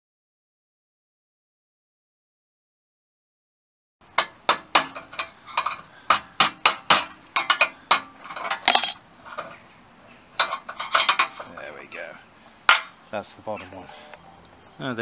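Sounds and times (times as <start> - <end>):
hammer striking steel drift: 4.2 - 9.0.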